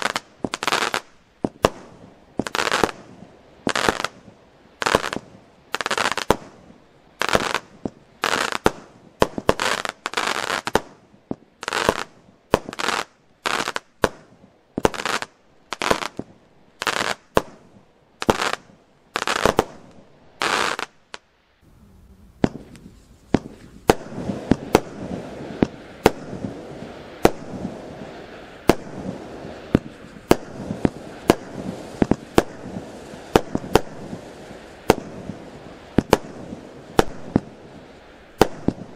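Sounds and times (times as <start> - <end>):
firework crackle: 0.0 - 38.9
firework battery shots: 21.7 - 38.9.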